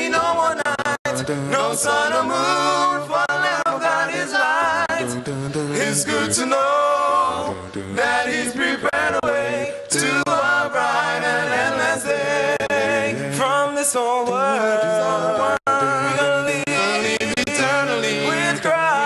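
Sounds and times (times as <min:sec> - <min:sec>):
male group singing a cappella: 0:00.0 - 0:19.0
bass voice holding low notes: 0:04.9 - 0:06.4.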